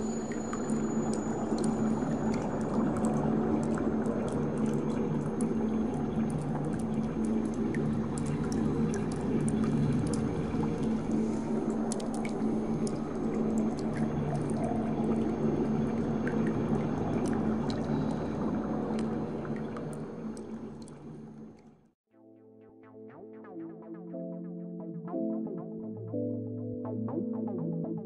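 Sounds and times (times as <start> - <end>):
water rushing and bubbling underwater: 0.0 - 21.6
small clicks and ticks: 11.7 - 14.6.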